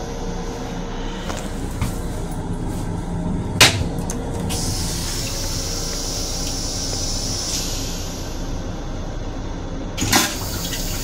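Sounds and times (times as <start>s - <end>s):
toilet flush hissing: 3.8s - 8.4s, 10.0s - 11.0s.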